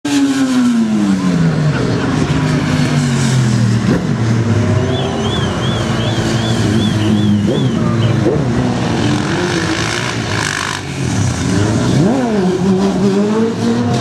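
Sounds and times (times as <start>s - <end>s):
motorcycle engines running: 0.1s - 14.0s
motorcycle passing: 0.1s - 14.0s.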